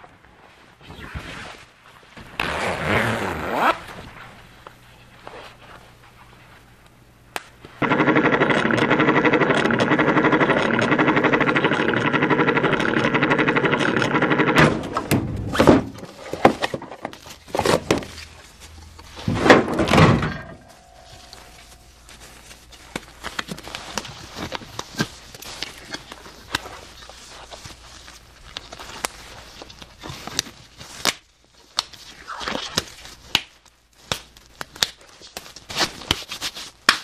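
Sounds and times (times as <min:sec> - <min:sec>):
tools scraping and knocking: 0:14.1 - 0:22.2
metal drawer sliding and clattering: 0:19.1 - 0:21.3.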